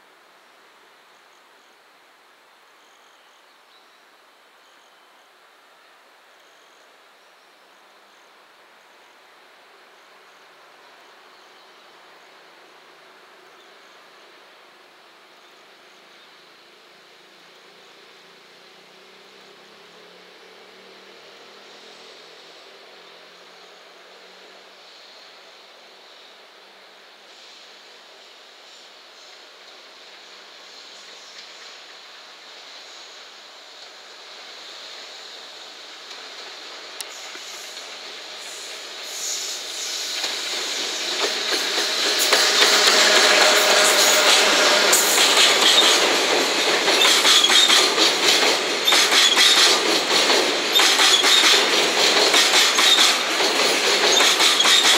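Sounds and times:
faint outdoor background noise: 0:00.0 - 0:54.9
high hiss: 0:00.0 - 0:54.9
insects chirping: 0:21.7 - 0:54.9
train wheels running on rails: 0:27.3 - 0:54.9.

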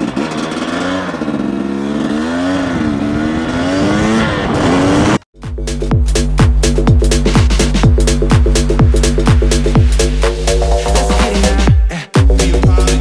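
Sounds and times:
two-stroke motorcycle engine revving: 0:00.0 - 0:11.7
electronic music with steady beat: 0:05.4 - 0:13.0.

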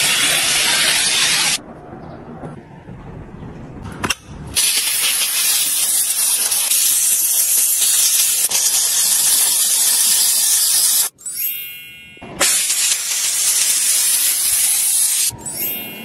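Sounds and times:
steam cleaner hissing: 0:00.0 - 0:01.6, 0:04.6 - 0:11.1, 0:12.4 - 0:15.3.

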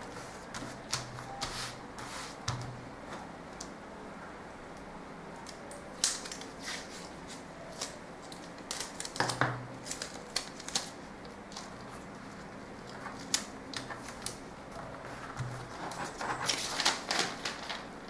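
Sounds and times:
paper rustling: 0:06.0 - 0:18.0.

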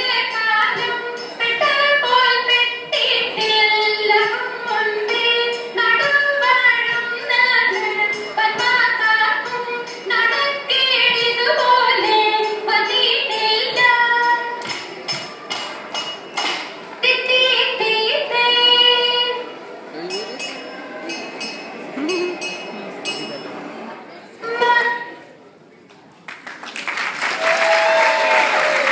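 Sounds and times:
sharp claps: 0:25.9 - 0:28.9.

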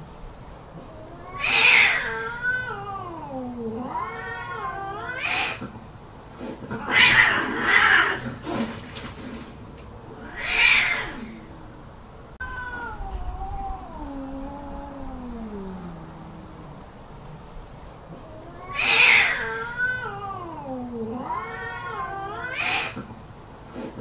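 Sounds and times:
cat yowling: 0:00.8 - 0:05.6, 0:06.7 - 0:08.2, 0:10.1 - 0:11.6, 0:12.4 - 0:16.7, 0:18.2 - 0:23.1
cat hissing snarls: 0:01.2 - 0:11.8, 0:13.8 - 0:17.4, 0:18.1 - 0:24.0.

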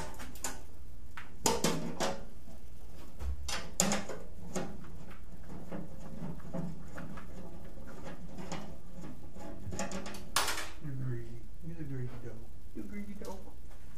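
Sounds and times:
steady low hum: 0:00.0 - 0:13.9
tools clicking and knocking: 0:03.4 - 0:04.8.

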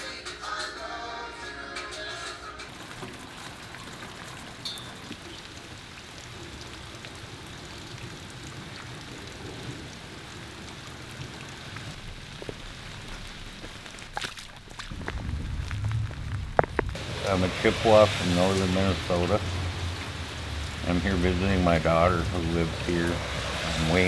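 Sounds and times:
steady rain pattering: 0:02.6 - 0:24.0
footsteps splashing through puddle: 0:11.9 - 0:17.0.

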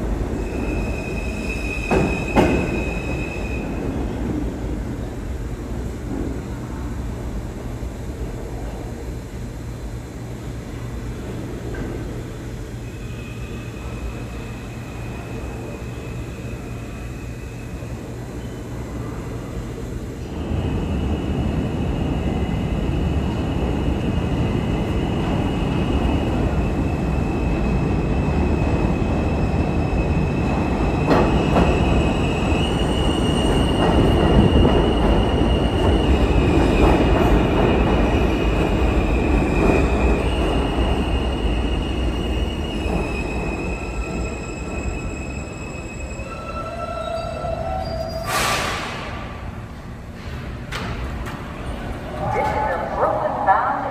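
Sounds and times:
train wheels on rails: 0:00.0 - 0:07.3, 0:19.0 - 0:45.9.

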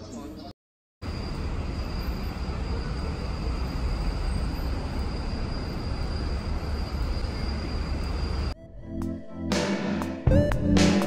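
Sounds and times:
road traffic rumble: 0:01.0 - 0:08.6
thin high whine: 0:01.0 - 0:08.6.

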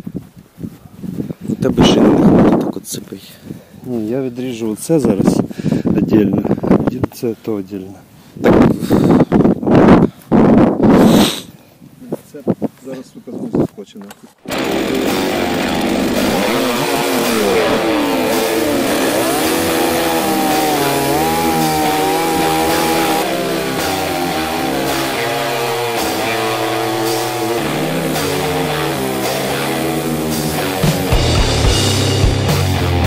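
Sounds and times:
chainsaw cutting wood: 0:14.4 - 0:32.2
rock music: 0:14.4 - 0:33.0.

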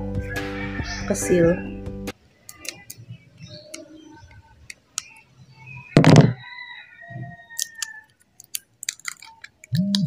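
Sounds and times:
crinkles and clicks: 0:02.4 - 0:05.3, 0:07.6 - 0:10.0
plastic shrink-wrap crackling: 0:07.8 - 0:09.9.

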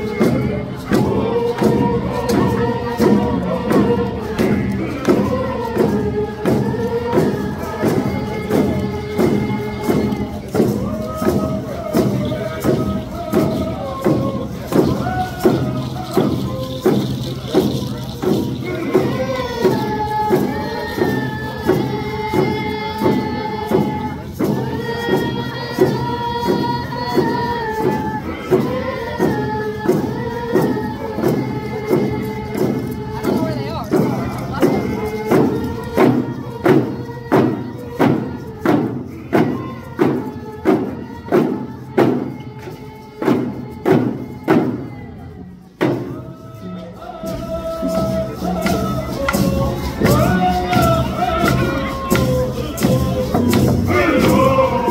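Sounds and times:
steady drumbeat: 0:00.0 - 0:54.9
young voices singing in unison: 0:00.0 - 0:54.9.

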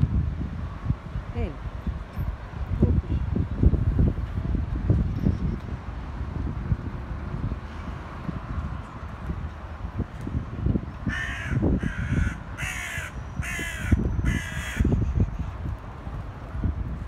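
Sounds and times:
bird harsh calls: 0:11.1 - 0:15.2.

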